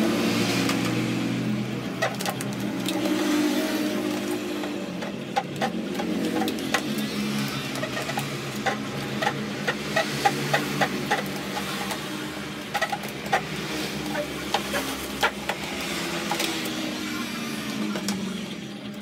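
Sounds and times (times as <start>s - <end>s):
vinyl film crackling and crinkling: 1.9s - 9.8s.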